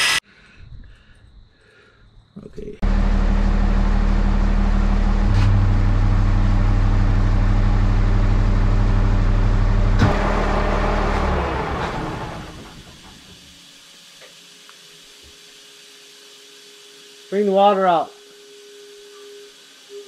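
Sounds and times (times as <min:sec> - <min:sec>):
wheel loader engine running: 0:02.8 - 0:13.5.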